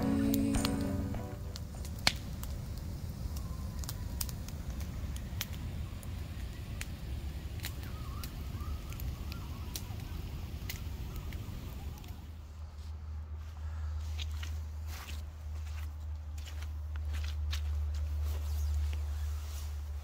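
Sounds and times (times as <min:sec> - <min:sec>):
low rumble: 0:00.0 - 0:02.5
wood fire crackling: 0:00.0 - 0:12.6.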